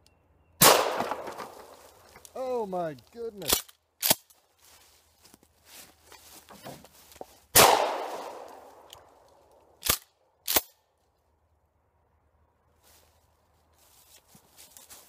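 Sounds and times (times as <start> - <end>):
shotgun firing: 0.6 - 1.7, 7.6 - 8.6.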